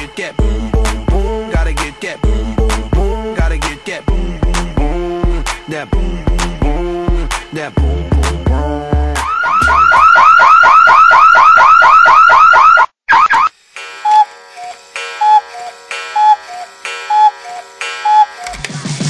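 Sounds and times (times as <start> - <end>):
electronic beat: 0.0 - 11.6, 13.4 - 19.0
alternating electronic beeps: 7.6 - 18.6
rising alarm-like whoops: 9.1 - 13.5.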